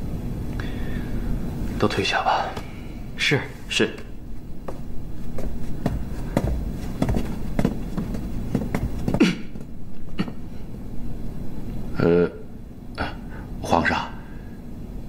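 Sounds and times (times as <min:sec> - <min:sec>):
footsteps on a hard floor: 0:04.0 - 0:09.8.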